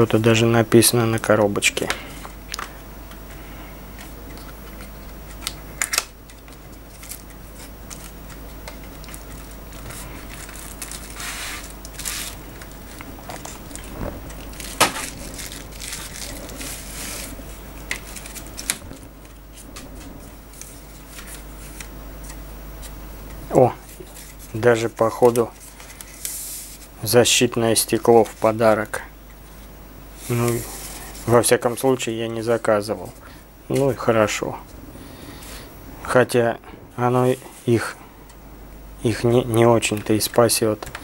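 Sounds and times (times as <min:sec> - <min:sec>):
steady low hum: 0:00.0 - 0:41.0
bubble-wrap bag crinkling: 0:04.4 - 0:21.9
cardboard box rustling: 0:08.9 - 0:21.9.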